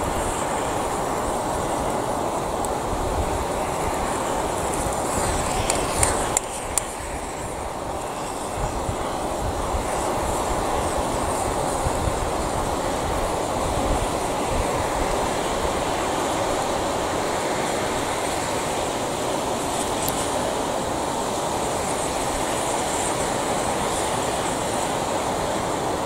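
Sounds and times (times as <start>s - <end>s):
burning plastic crackling: 0.0s - 16.5s
gas torch hissing: 0.0s - 26.0s.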